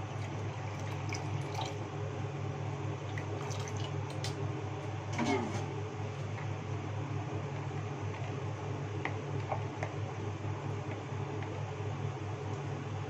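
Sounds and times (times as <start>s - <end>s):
water pouring into a bowl: 0.0s - 1.8s, 3.0s - 4.3s
steady low hum: 0.0s - 13.0s
water splashing and dripping: 0.1s - 1.8s, 3.1s - 4.4s.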